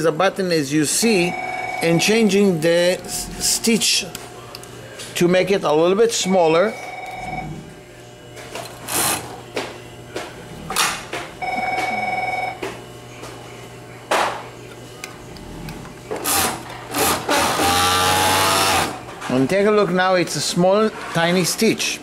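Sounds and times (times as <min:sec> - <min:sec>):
warbling ringing tone: 0:01.0 - 0:03.6, 0:06.2 - 0:07.6.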